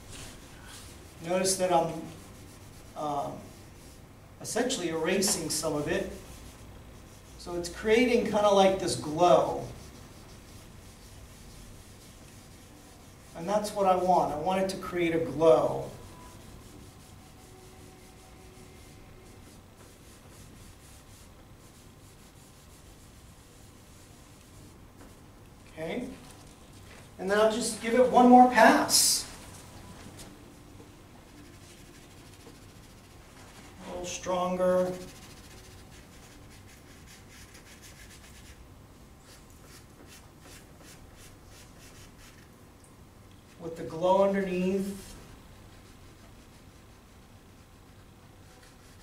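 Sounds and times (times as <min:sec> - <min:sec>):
drawing tool rubbing on paper: 0:00.1 - 0:04.0, 0:09.4 - 0:14.1, 0:15.3 - 0:24.8, 0:31.2 - 0:38.6, 0:44.9 - 0:49.0
crayon scratching on paper: 0:09.5 - 0:14.1, 0:31.3 - 0:33.2, 0:34.8 - 0:38.6, 0:45.7 - 0:49.0.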